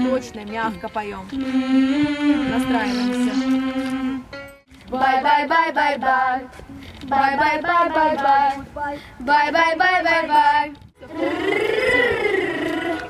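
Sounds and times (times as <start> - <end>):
children singing short notes: 1.4 - 4.2.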